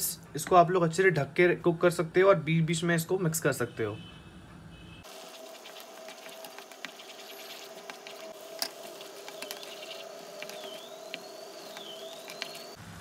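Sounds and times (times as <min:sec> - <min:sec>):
wooden spatula stirring gravy: 0:05.1 - 0:12.8
steady hum: 0:05.1 - 0:13.0.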